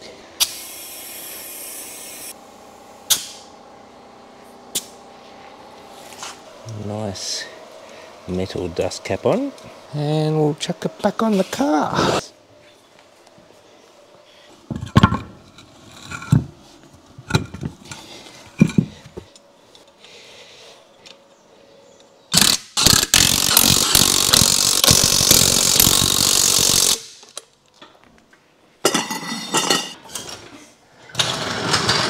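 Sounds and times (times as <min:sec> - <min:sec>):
impact wrench rattling: 0:22.4 - 0:27.3.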